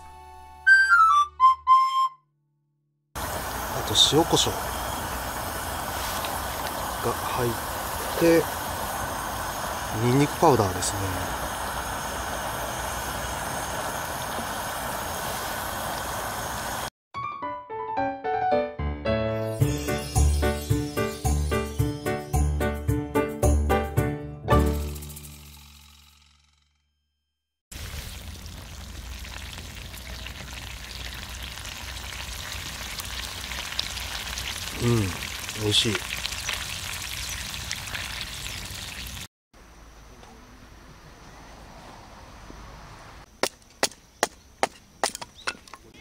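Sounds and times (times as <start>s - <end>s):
gas stove burner rushing: 3.2s - 16.9s
oil sizzling and popping: 3.2s - 16.9s, 27.7s - 39.3s.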